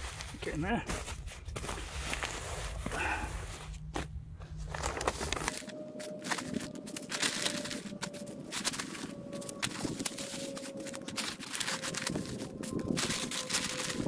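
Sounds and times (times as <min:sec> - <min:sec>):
sand shovelled with plastic scoop: 0:00.0 - 0:03.7
fabric bag rustling: 0:00.0 - 0:14.0.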